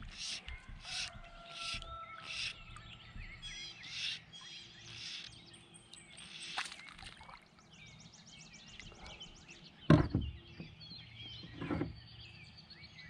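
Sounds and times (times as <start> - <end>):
bird trill: 0.0 - 7.0
birds chirping and singing: 0.0 - 13.0.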